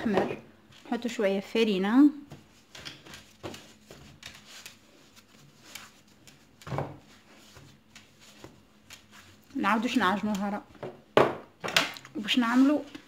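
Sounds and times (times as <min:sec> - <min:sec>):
hands kneading dough: 0:02.2 - 0:11.1.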